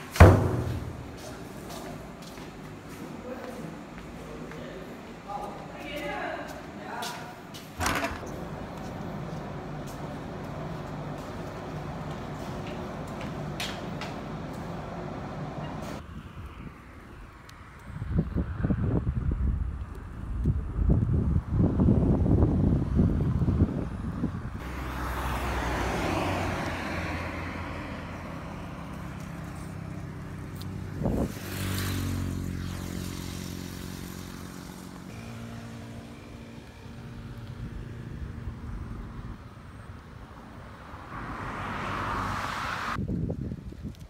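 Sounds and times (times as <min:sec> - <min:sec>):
vehicle engine humming: 0:08.2 - 0:16.3, 0:19.2 - 0:43.0
car passing: 0:24.6 - 0:43.0.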